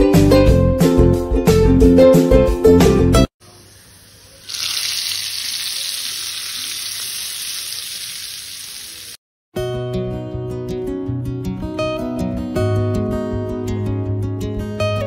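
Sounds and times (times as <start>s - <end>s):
hot oil sizzling: 3.4s - 9.2s.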